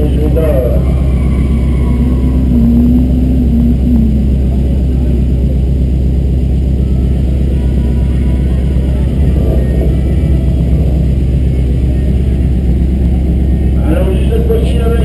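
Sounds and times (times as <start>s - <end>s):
wavering higher tone: 0.0s - 13.8s
car engines idling: 0.0s - 15.0s.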